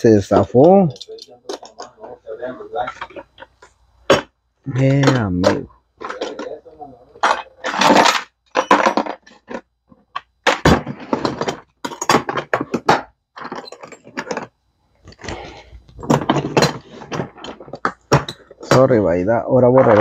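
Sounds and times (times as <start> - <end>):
plastic cases clicking and rattling: 7.2 - 14.5.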